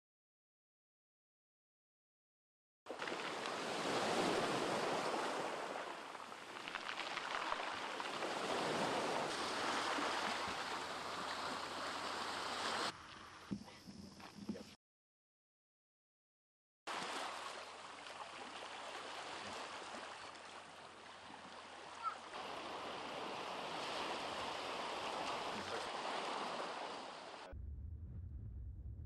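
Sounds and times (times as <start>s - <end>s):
sea surf washing on shore: 2.9s - 13.0s, 16.9s - 27.5s
low hum: 27.5s - 29.0s.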